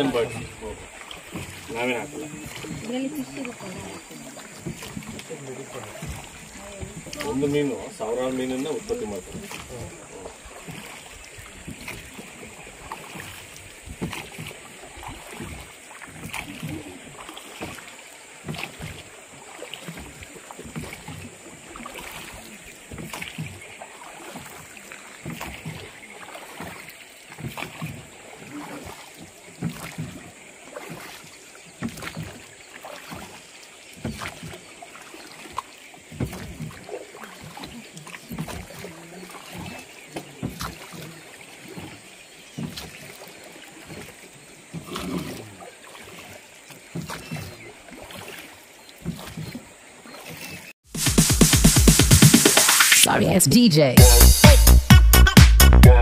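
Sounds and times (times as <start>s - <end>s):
water against hull: 0.0s - 54.3s
oars splashing: 0.0s - 56.0s.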